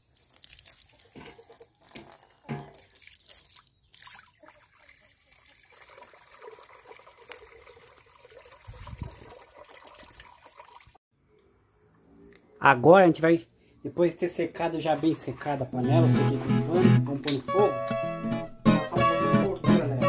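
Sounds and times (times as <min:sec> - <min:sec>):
water splashing into cauldron: 0:00.0 - 0:11.0.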